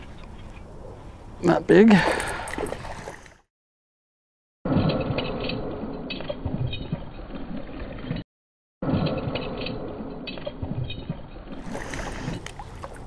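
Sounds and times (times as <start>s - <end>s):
fish splashing at surface: 11.6s - 13.0s.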